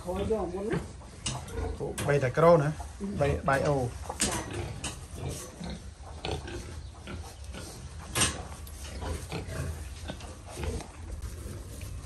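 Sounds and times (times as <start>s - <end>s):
pigs grunting: 0.0s - 2.1s, 3.0s - 12.0s.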